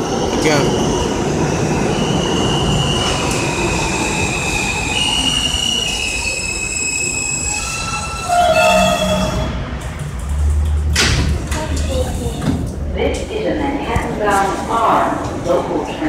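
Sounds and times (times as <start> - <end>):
train wheels rumbling on rail: 0.0 - 16.0
brakes squealing: 2.4 - 10.0.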